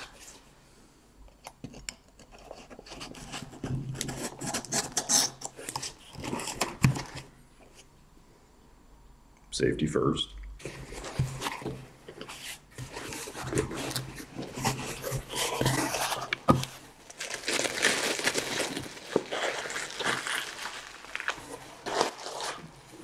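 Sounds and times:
bubble wrap and cardboard rustling: 0.0s - 0.5s, 2.4s - 7.8s, 10.6s - 23.0s.

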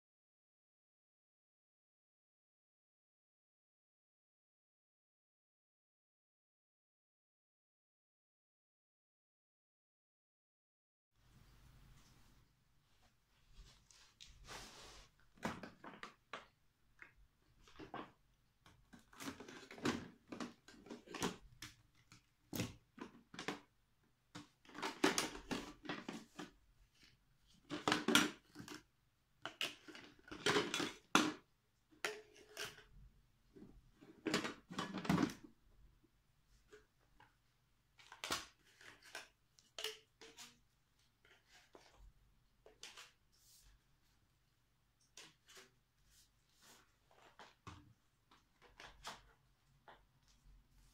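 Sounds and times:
plastic parts clattering: 17.6s - 23.7s, 24.4s - 26.6s, 27.6s - 33.0s, 34.0s - 35.5s.

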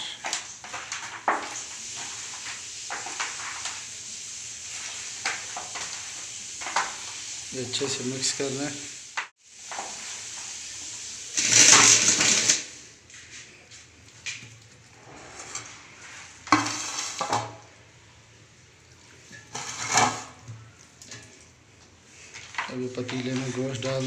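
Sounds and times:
metal tray and pot clatter: 11.4s - 12.6s, 16.4s - 17.6s, 19.3s - 20.5s.

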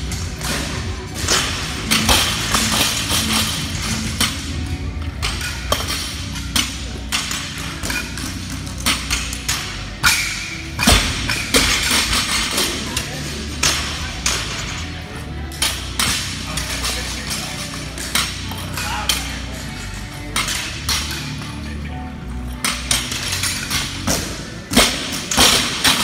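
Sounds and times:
background music: 0.0s - 26.0s
voices: 12.0s - 24.0s.

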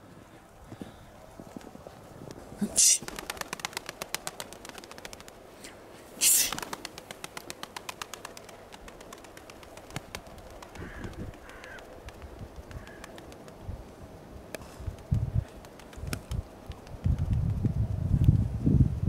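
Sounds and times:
pigeon wings clattering: 3.0s - 5.5s, 6.3s - 13.6s, 14.5s - 17.6s.

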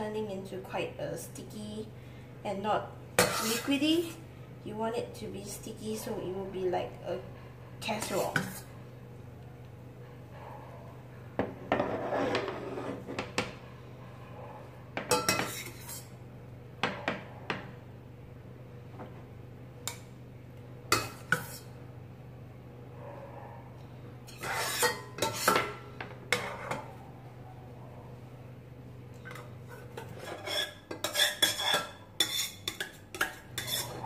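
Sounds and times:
metal spoon scraping saucepan: 3.2s - 3.8s, 7.9s - 8.7s, 11.7s - 13.1s, 15.1s - 16.2s, 20.9s - 21.7s, 24.2s - 25.7s, 29.2s - 34.0s.

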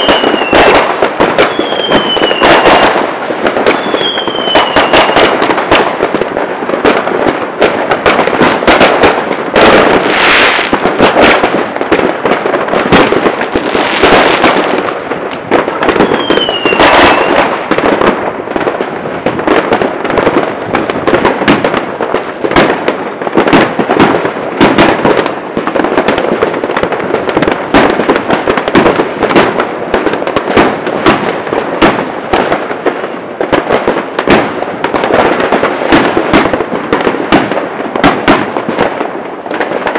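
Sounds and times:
falling firework whistle: 0.0s - 5.8s, 9.6s - 11.5s, 13.0s - 17.7s
crackling hiss of fireworks: 0.0s - 39.9s
fireworks bangs and cracks: 0.0s - 39.9s.

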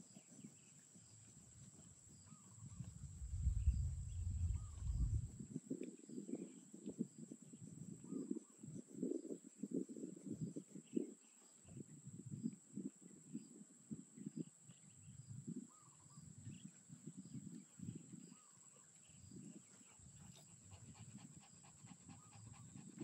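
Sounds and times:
puppy panting: 19.5s - 23.0s.

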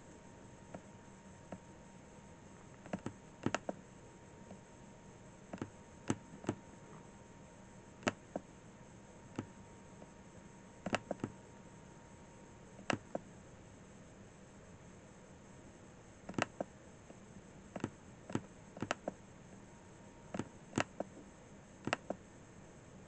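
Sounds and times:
faint electrical hum: 0.0s - 23.0s
computer mouse clicking: 2.8s - 3.8s, 5.5s - 6.6s, 8.0s - 8.4s, 9.3s - 9.5s, 10.8s - 11.4s, 12.8s - 13.2s, 16.3s - 16.7s, 17.7s - 19.2s, 20.3s - 21.1s, 21.8s - 22.2s.

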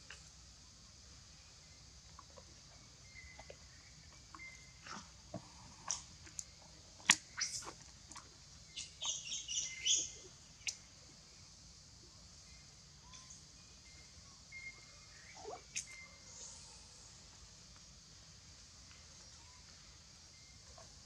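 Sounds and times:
bird chirping: 8.7s - 10.8s, 12.4s - 16.8s.

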